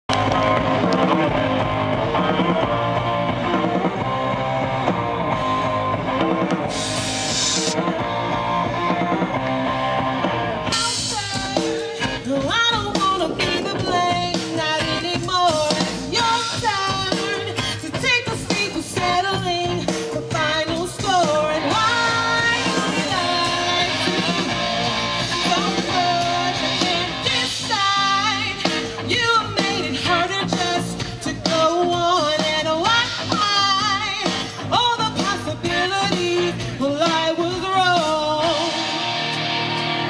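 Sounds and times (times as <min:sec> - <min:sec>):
bass guitar: 0:00.0 - 0:40.0
drum kit: 0:00.1 - 0:40.0
electric guitars: 0:00.1 - 0:40.0
keyboard: 0:00.1 - 0:40.0
lead singer singing: 0:10.6 - 0:39.4.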